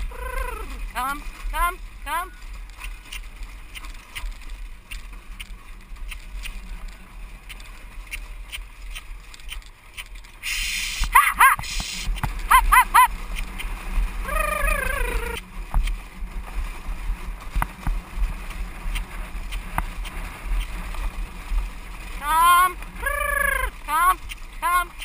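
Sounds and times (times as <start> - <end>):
carriage rumbling over grass: 0.0 - 10.4, 11.0 - 25.0
driver calling to pony: 0.1 - 2.4, 22.2 - 25.0.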